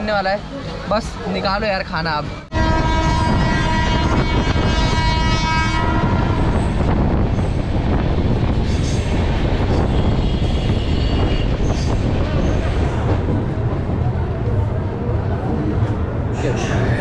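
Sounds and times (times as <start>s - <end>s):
train running along track: 0.0s - 17.0s
train horn: 2.5s - 6.8s.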